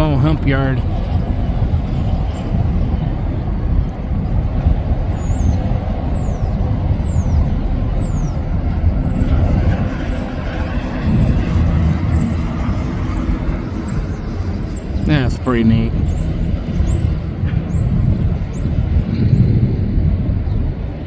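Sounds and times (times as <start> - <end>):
rail yard rumble: 0.0 - 21.0.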